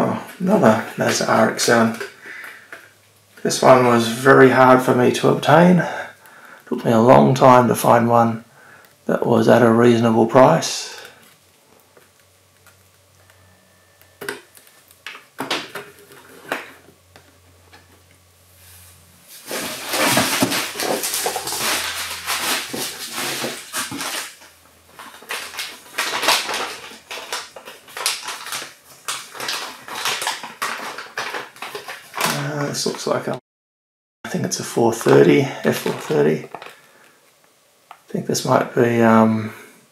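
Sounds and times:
rustling inside a box: 0:19.2 - 0:33.2.

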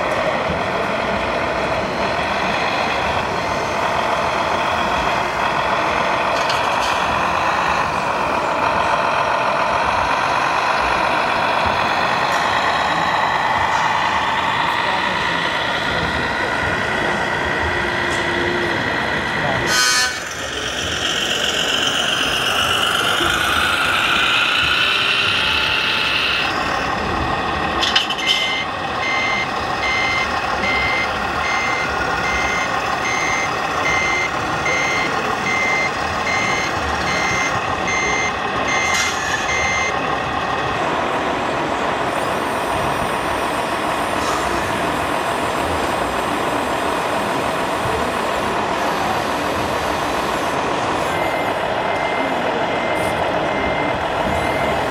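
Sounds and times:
steady background noise: 0:00.0 - 0:54.9
reversing beeper beeps: 0:09.1 - 0:27.2, 0:27.8 - 0:40.0, 0:51.0 - 0:54.9.

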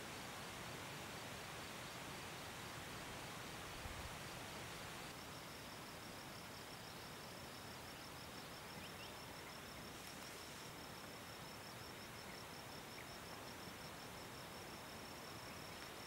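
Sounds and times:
faint background hiss: 0:00.0 - 0:16.0
cricket chirping: 0:04.2 - 0:16.0.

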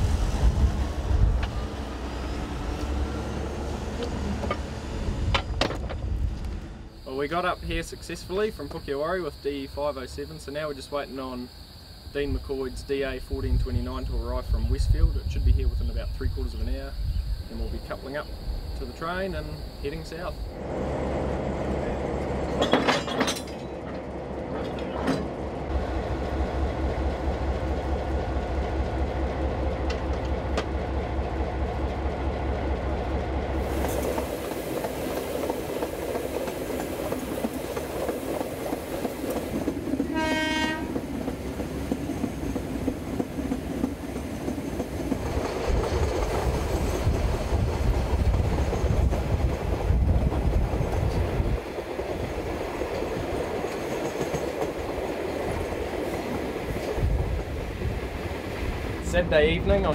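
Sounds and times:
train wheels over rail joints: 0:00.0 - 0:10.7, 0:12.3 - 0:59.9
train horn: 0:40.0 - 0:41.1.

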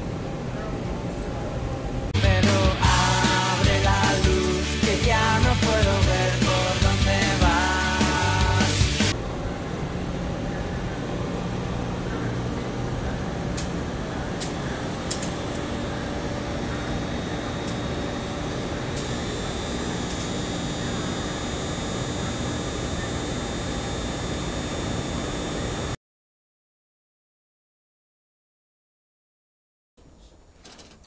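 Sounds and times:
machine shop ventilation hum: 0:00.0 - 0:04.2, 0:04.9 - 0:26.0
faint high whine: 0:09.1 - 0:26.0.

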